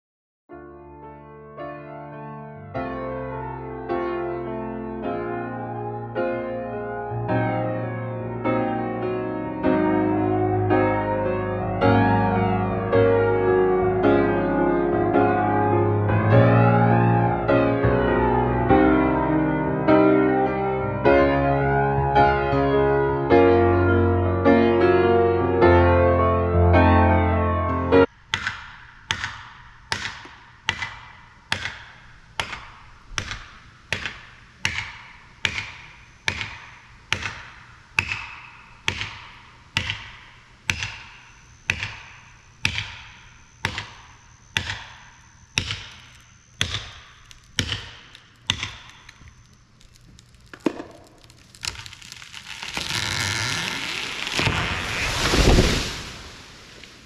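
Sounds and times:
hammer striking wedge: 28.3 - 49.4
tree crashing to ground: 49.0 - 57.0
rush of branches: 50.6 - 57.0.

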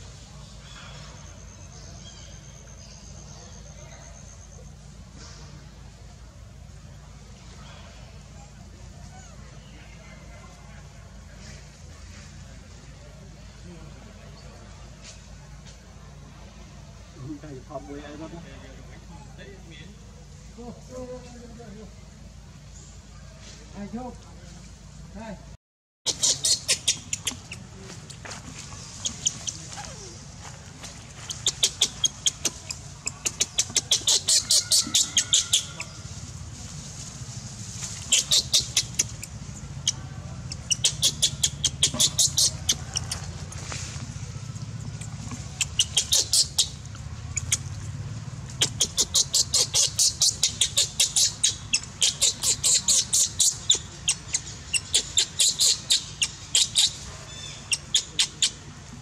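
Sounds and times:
steady low hum: 0.0 - 59.0
rapid high-pitched chirping: 26.1 - 27.7, 31.2 - 36.1, 38.0 - 43.6, 45.0 - 47.7, 48.5 - 58.6.

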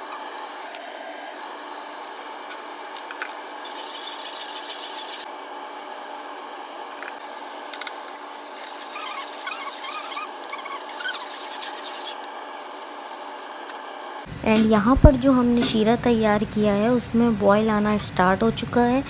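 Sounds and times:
metal spoon scraping steel pot: 8.6 - 12.2.

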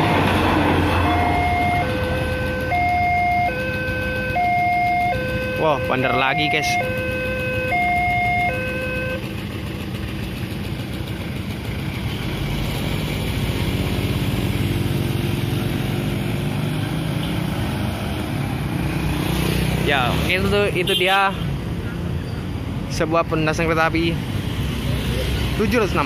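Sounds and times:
level crossing alarm tones: 0.0 - 9.2
motorcycle engine: 0.0 - 21.4
truck engine: 0.0 - 26.0.

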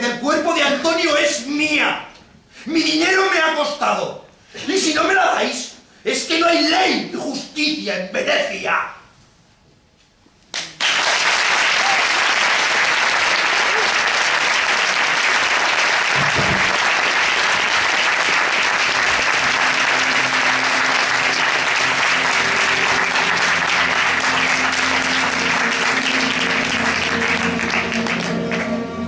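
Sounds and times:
audience applauding: 10.6 - 28.9
music: 16.1 - 29.0.

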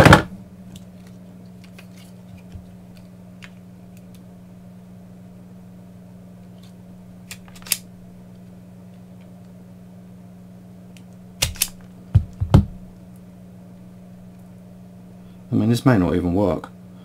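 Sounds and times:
low steady hum: 0.0 - 17.0
wire stripper clicking: 11.0 - 12.4
tool knocking on mat: 12.1 - 12.8.

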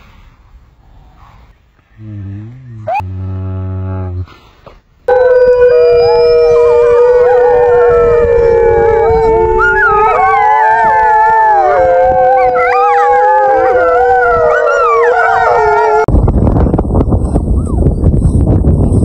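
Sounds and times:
wolves howling: 5.1 - 16.1.

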